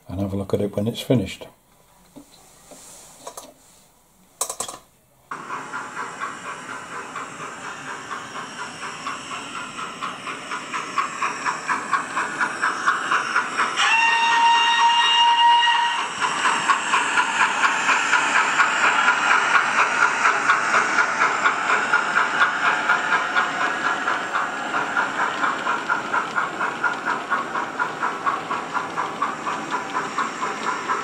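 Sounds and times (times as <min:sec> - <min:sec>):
steam locomotive exhaust chuffs: 0:05.3 - 0:31.0
steam whistle: 0:13.8 - 0:16.2.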